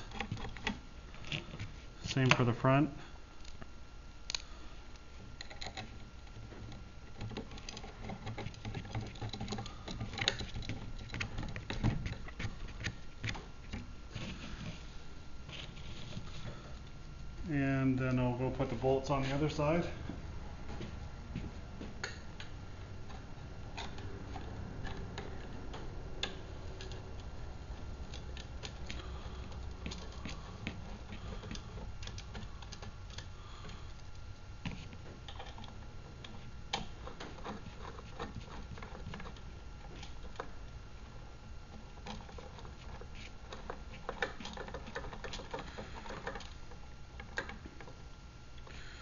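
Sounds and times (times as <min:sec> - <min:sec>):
low steady hum: 0:00.0 - 0:49.0.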